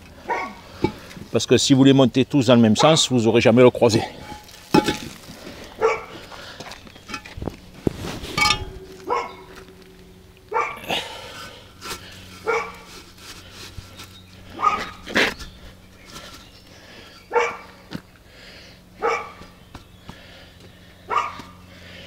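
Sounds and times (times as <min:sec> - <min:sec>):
dog barking: 0:00.3 - 0:00.6, 0:02.8 - 0:03.1, 0:05.8 - 0:06.2, 0:09.0 - 0:09.5, 0:10.5 - 0:10.8, 0:12.4 - 0:12.8, 0:14.6 - 0:15.0, 0:17.3 - 0:17.7, 0:19.0 - 0:19.4, 0:21.1 - 0:21.6.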